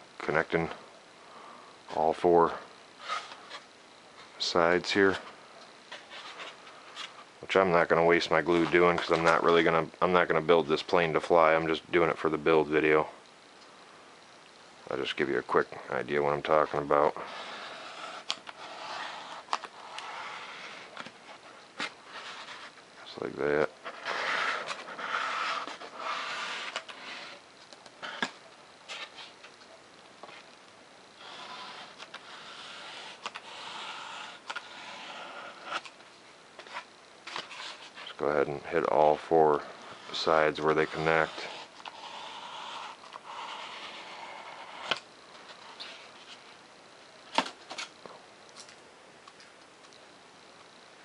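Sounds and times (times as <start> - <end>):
foam board rustling: 3.0 - 10.3, 16.4 - 29.6, 31.2 - 38.3.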